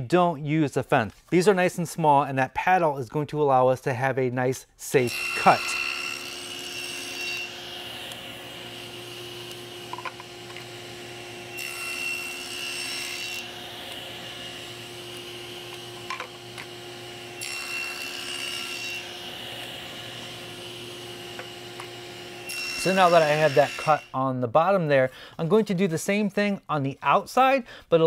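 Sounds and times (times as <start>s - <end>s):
table saw cutting wood: 5.0s - 24.2s.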